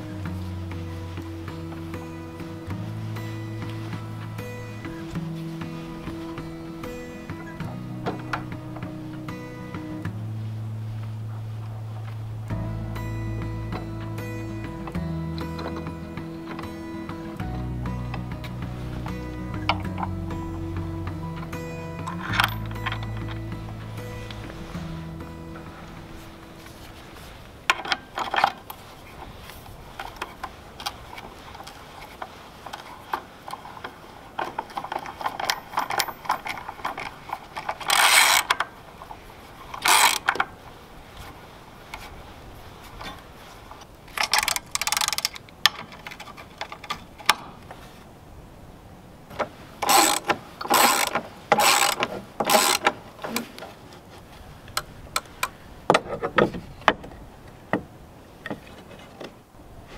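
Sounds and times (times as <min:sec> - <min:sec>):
ratchet wrench clicking: 0:35.4 - 0:38.6, 0:39.8 - 0:40.4, 0:44.2 - 0:45.4, 0:49.8 - 0:52.9.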